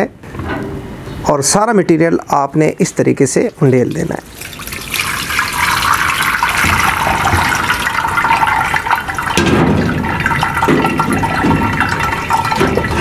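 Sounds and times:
liquid splashing into vessel: 3.5 - 13.0.

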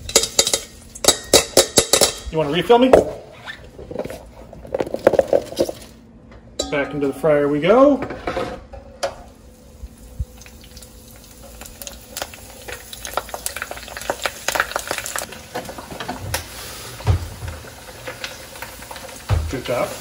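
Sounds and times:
oil sizzling and crackling: 0.0 - 2.0, 9.2 - 20.0.

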